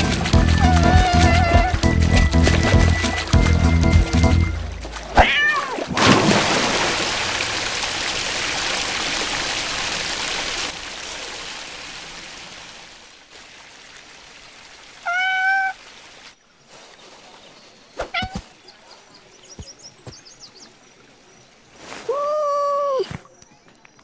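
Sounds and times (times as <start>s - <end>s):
rushing water: 0.0s - 24.0s
cat meow: 5.2s - 5.8s, 15.0s - 15.8s.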